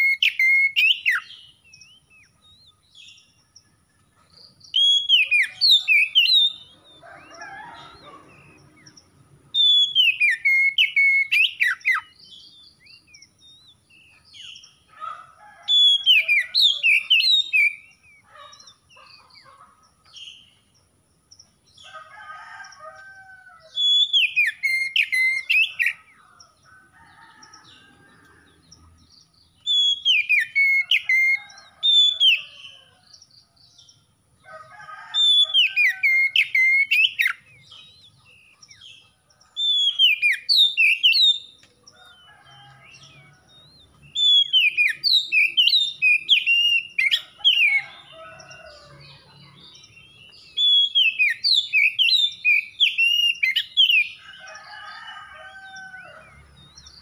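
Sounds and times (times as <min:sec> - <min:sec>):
bird whistling song: 0:00.0 - 0:02.8, 0:04.7 - 0:08.6, 0:09.5 - 0:13.8, 0:15.7 - 0:19.1, 0:23.7 - 0:26.0, 0:29.6 - 0:32.5, 0:35.2 - 0:37.4, 0:39.6 - 0:41.6, 0:44.1 - 0:47.9, 0:50.5 - 0:54.2.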